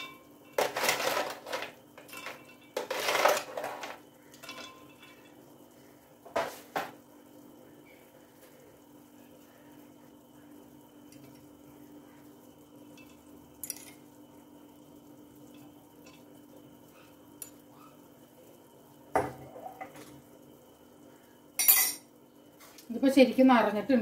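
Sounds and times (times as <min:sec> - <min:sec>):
spoon clinking ice in glass jug: 0:00.0 - 0:05.4, 0:12.9 - 0:14.0.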